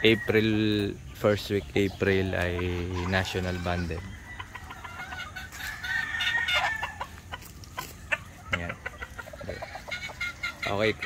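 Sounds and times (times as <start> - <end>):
chickens clucking: 0.0 - 11.0
rooster crowing: 3.0 - 7.2.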